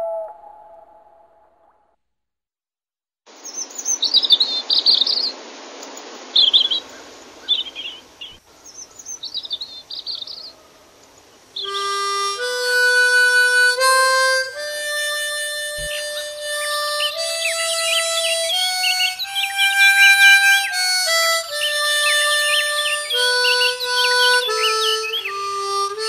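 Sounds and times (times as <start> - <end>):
wind instrument slow tune: 0.0 - 1.3, 11.6 - 26.0
songbirds chirping: 3.3 - 12.1, 15.7 - 26.0
outdoor hiss: 3.3 - 26.0.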